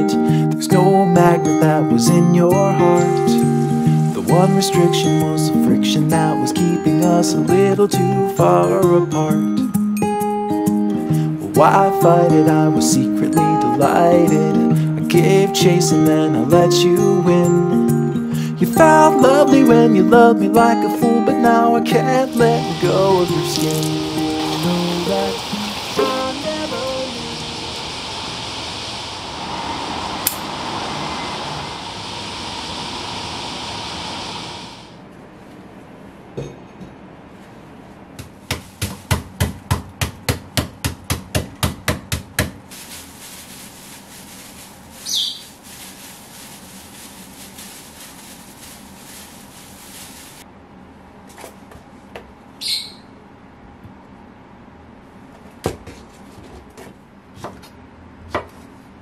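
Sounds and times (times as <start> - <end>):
steady hiss: 1.8 - 6.5, 21.4 - 35.0, 42.7 - 50.4
pestle pounding on board: 38.2 - 42.6.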